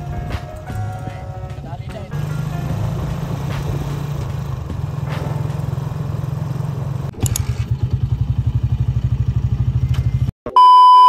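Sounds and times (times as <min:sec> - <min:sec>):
small motorcycle engine running: 0:02.1 - 0:10.3.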